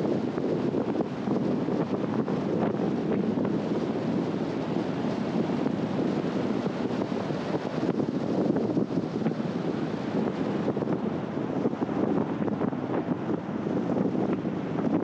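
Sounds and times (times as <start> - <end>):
car wind and road noise: 0.0 - 15.0.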